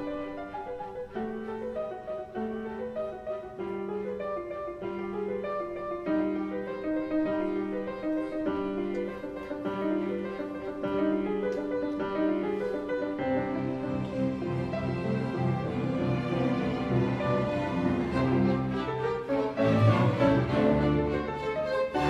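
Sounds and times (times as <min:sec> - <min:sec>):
classical piano music: 0:00.0 - 0:22.0.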